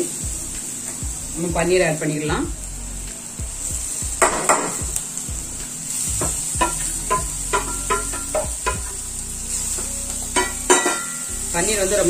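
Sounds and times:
food sizzling in oil: 0.0s - 12.0s
metallic clinks of plate on pan: 6.6s - 9.0s, 10.4s - 11.3s.

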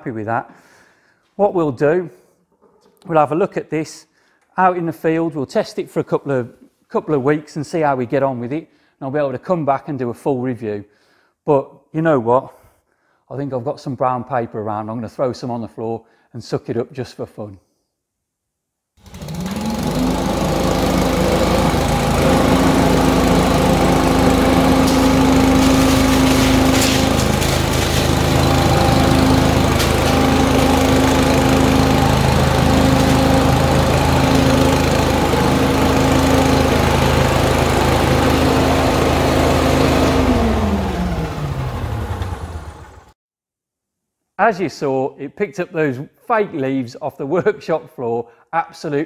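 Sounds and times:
leaf vacuum engine and fan running: 19.0s - 43.1s.

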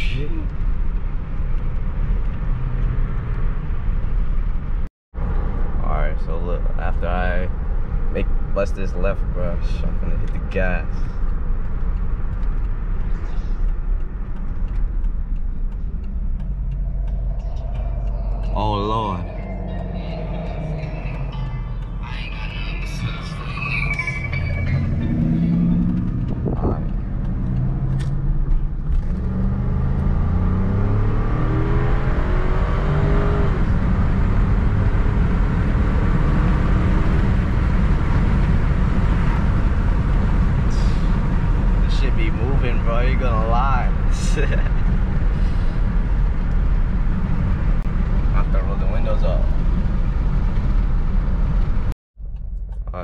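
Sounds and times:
car engine low rumble: 0.0s - 53.0s
road noise: 0.0s - 53.0s
wind noise: 23.0s - 48.4s.

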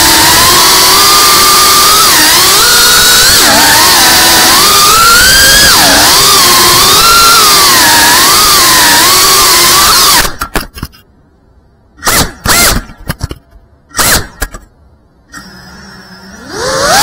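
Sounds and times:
drone motors whining: 0.0s - 10.4s, 15.3s - 17.0s.

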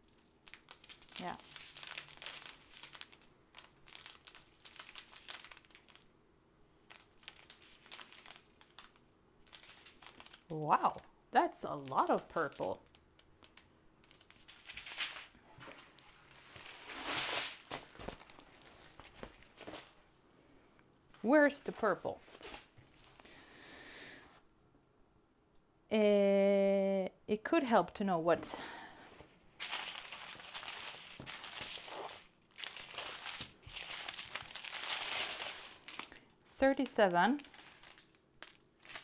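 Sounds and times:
plastic bags crinkling: 0.0s - 6.1s, 6.8s - 11.0s, 11.7s - 20.0s, 29.1s - 39.0s.

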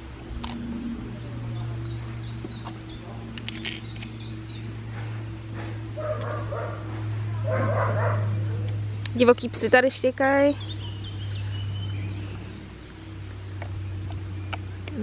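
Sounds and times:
steady low hum: 0.0s - 15.0s
dogs barking and yelping: 5.9s - 8.7s.

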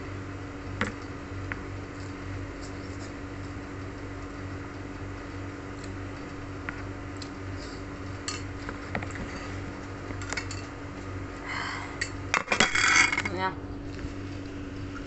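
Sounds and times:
steady low hum: 0.0s - 15.0s
metal spoon scraping a bowl: 12.6s - 13.2s.

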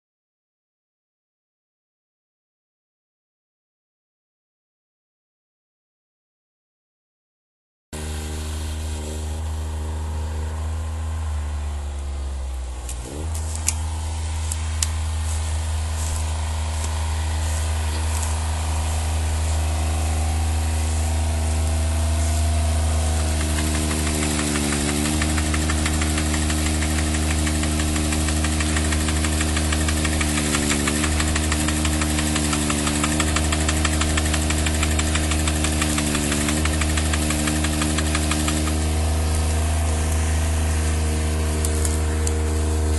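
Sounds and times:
harvester engine running: 8.0s - 42.9s
sharp clicks: 12.8s - 13.8s.

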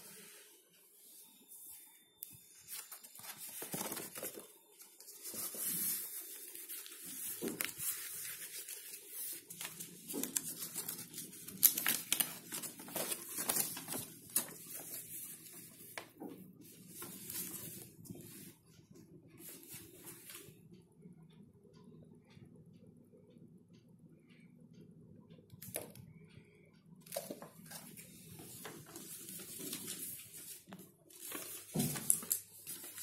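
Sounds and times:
paper and card rustling: 2.6s - 18.5s, 27.1s - 33.0s.

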